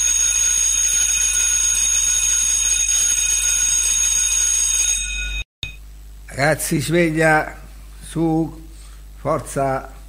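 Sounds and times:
alarm clock bell ringing: 0.0 - 5.5.

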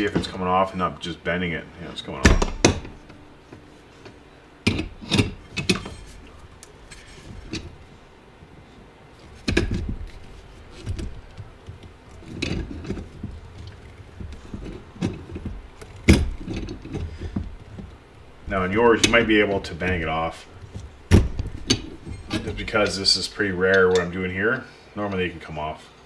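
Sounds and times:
metal knocks: 2.2 - 7.9, 9.3 - 24.0
metallic clicks and clanks: 9.4 - 24.1.

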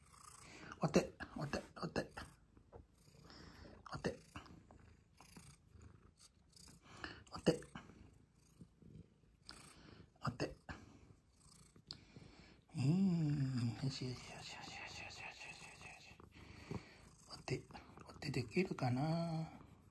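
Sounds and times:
cat purring: 0.0 - 19.9
low voice: 3.8 - 4.4, 7.2 - 7.9, 10.2 - 10.8, 12.7 - 16.2, 17.3 - 19.6.

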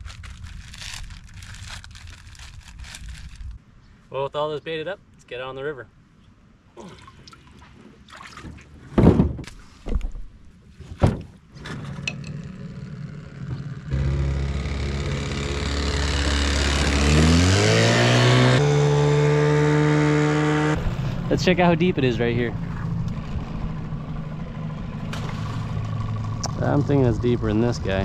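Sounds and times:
boat motor running: 12.0 - 19.3, 22.5 - 28.0.

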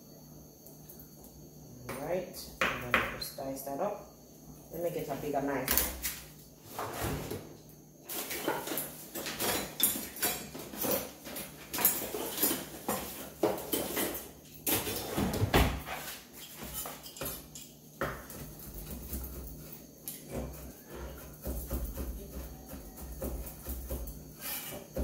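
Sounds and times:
kitchen utensils clattering: 8.1 - 17.8.

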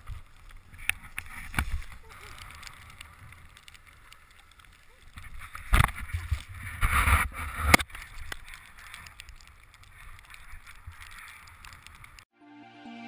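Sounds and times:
camera rustling and scraping: 0.1 - 2.8, 5.2 - 12.2.

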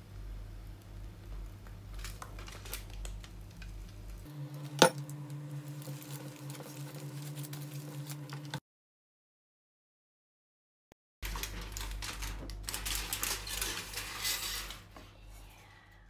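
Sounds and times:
low steady hum: 0.0 - 8.6
aluminium foil crinkling: 1.2 - 8.6, 11.2 - 15.0.

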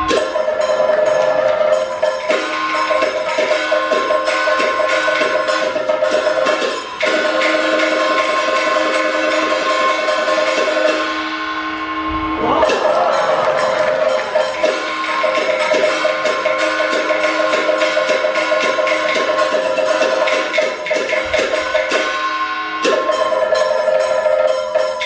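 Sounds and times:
cymbals: 0.0 - 25.0
gong: 0.0 - 25.0
held melodic line: 11.1 - 24.4.

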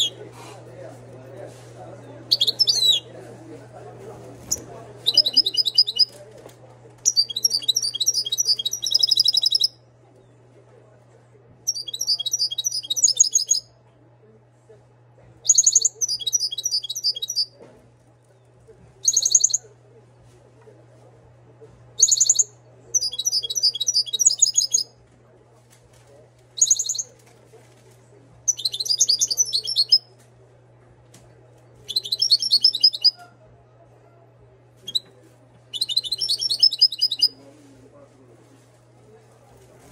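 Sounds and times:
steady low hum: 0.0 - 39.9
goldfinch twittering song: 31.9 - 33.1.

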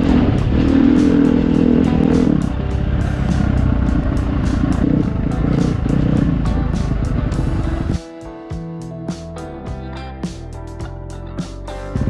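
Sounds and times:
dirt bike engine running: 0.0 - 8.0
music with steady beat: 0.0 - 12.0.

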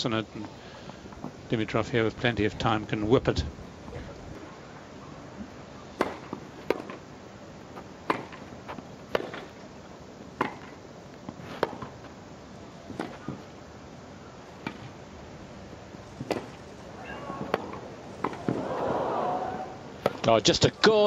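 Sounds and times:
tennis racquet striking ball: 6.0 - 7.0.

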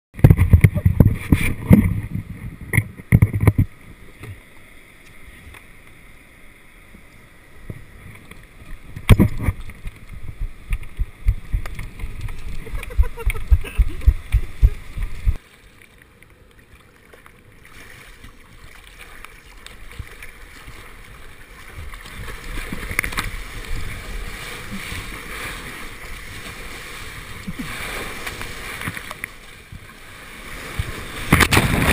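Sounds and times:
water splashing against surfboard: 0.2 - 4.5, 7.6 - 31.9
low knocks and buffeting: 8.9 - 15.4
whitewater breaking: 17.6 - 31.9.

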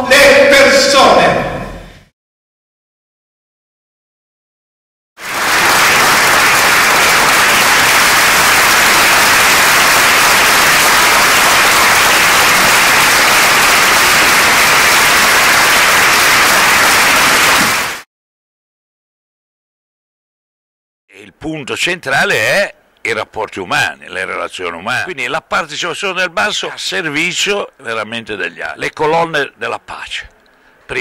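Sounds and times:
audience applauding: 5.2 - 18.0.

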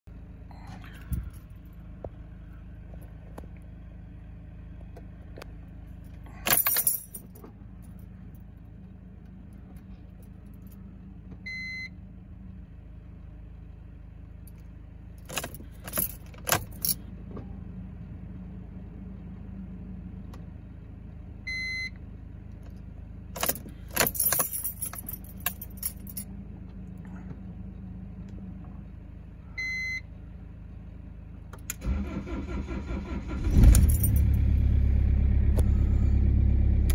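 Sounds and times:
steady low hum: 0.1 - 21.8
car keys jangling: 6.0 - 7.4, 15.2 - 17.0, 23.4 - 26.2, 33.4 - 34.4
ignition key turning: 15.2 - 17.0, 23.4 - 26.2.

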